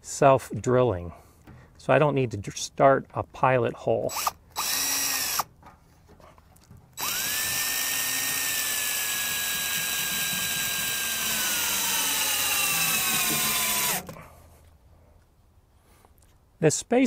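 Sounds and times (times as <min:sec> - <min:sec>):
cordless drill whining: 0:04.1 - 0:05.5, 0:07.0 - 0:14.2.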